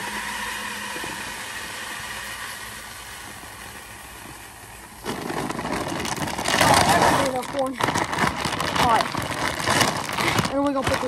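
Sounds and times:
corn pouring into a bucket: 5.0s - 11.0s
feed bag crackling: 5.0s - 11.0s.

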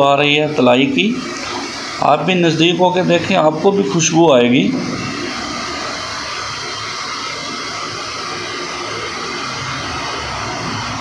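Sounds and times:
dough deep-frying in oil: 5.2s - 11.0s.

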